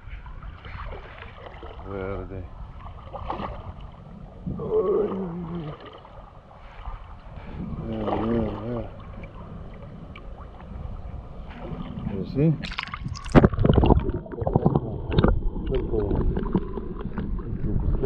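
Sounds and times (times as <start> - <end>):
shallow seawater rumbling: 0.0 - 18.0
person making wordless vocal sounds: 4.5 - 5.8.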